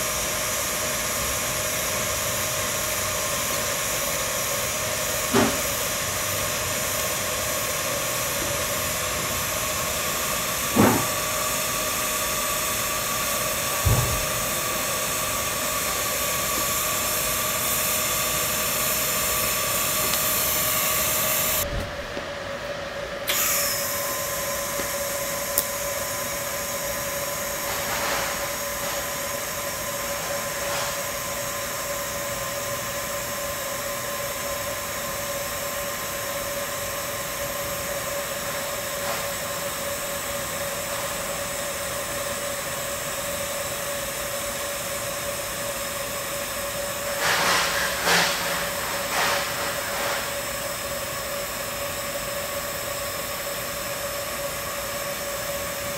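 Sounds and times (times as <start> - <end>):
welding arc hissing: 0.0 - 21.9, 46.1 - 51.0.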